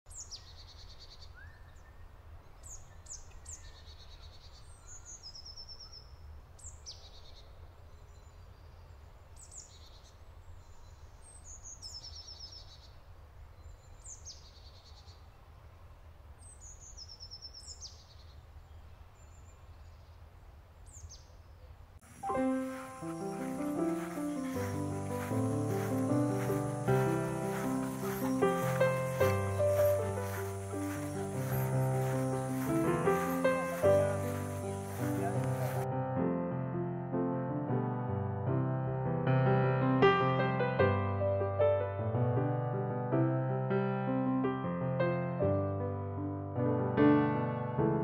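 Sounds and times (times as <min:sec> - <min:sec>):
bird song with trill: 0:00.1 - 0:13.0, 0:13.6 - 0:15.3, 0:16.4 - 0:20.2, 0:20.8 - 0:21.6, 0:22.2 - 0:35.8.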